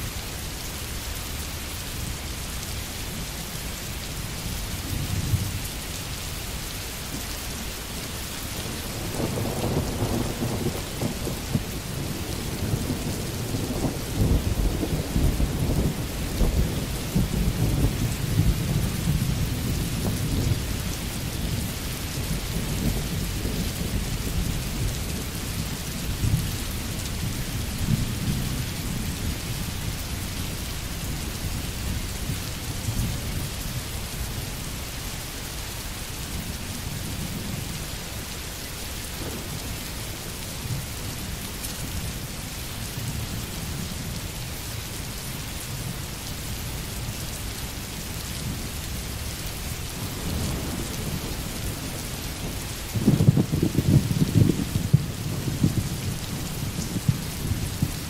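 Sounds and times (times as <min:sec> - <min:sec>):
heavy rain: 0:00.0 - 0:58.0
thunder rumbling: 0:08.6 - 0:29.6, 0:49.9 - 0:58.0.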